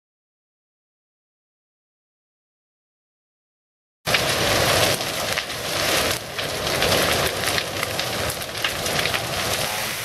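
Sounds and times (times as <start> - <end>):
burning wood crackling: 4.1 - 10.0
fire roaring: 4.1 - 10.0.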